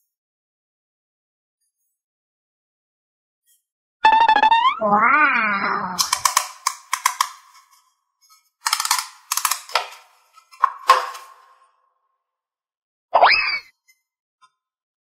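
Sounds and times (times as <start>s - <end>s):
sharp clicks: 6.0s - 7.7s, 8.6s - 11.4s.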